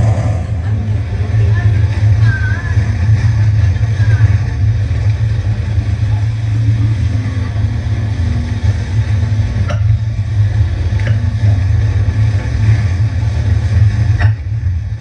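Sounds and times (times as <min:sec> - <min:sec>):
wind on microphone: 0:00.0 - 0:04.8
jet ski engine: 0:00.0 - 0:15.0.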